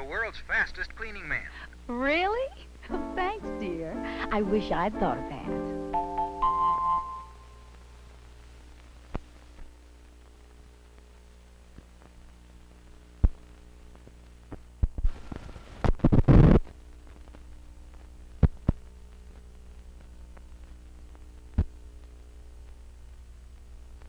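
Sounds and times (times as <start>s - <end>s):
low film hum: 0.0s - 24.0s
film pops and crackling: 7.6s - 24.0s.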